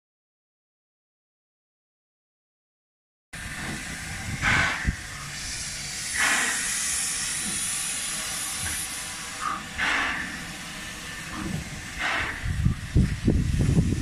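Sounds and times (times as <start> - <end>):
steam locomotive hissing: 3.4 - 14.0
steam puffs: 3.4 - 14.0.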